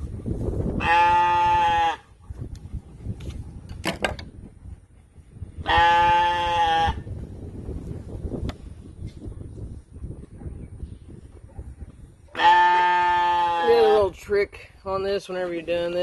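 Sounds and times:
sheep bleating: 0:00.8 - 0:02.0, 0:05.7 - 0:07.0, 0:12.4 - 0:14.0.

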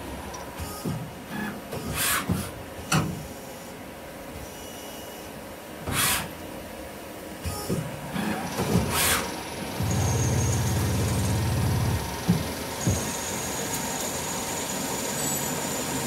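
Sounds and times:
lathe hissing bursts: 0:08.9 - 0:16.0
lathe spindle humming: 0:09.4 - 0:16.0.

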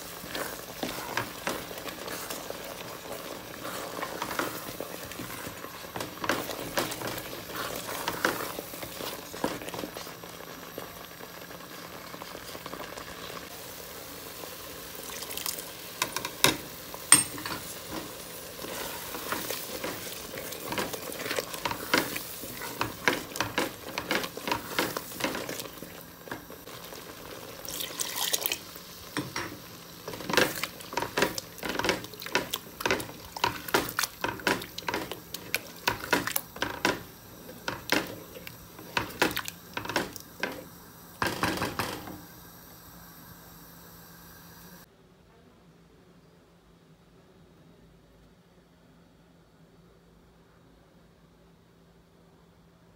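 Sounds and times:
curry sizzling: 0:00.0 - 0:44.9
wooden spatula scraping pot: 0:00.1 - 0:10.1, 0:17.3 - 0:26.4.

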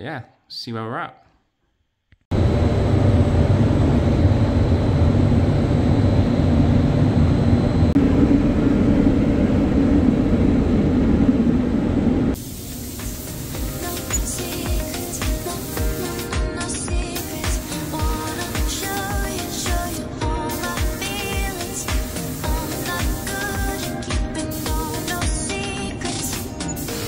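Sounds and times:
low rumble: 0:02.3 - 0:12.4
spray booth rushing hiss: 0:12.4 - 0:27.0
background music: 0:13.0 - 0:27.0.

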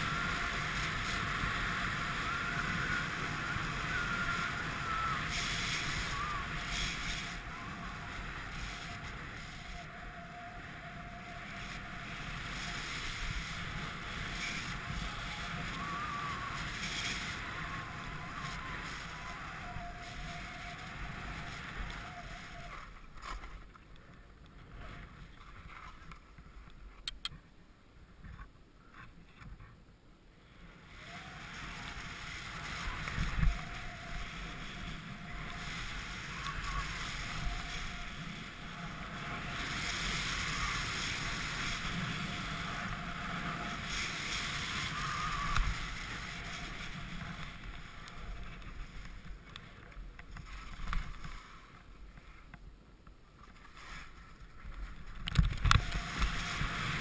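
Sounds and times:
wind rushing over microphone: 0:00.0 - 0:23.6, 0:30.5 - 0:52.4, 0:53.4 - 0:57.0
skis sliding on snow: 0:00.0 - 0:26.7, 0:30.4 - 0:52.6, 0:53.2 - 0:57.0.

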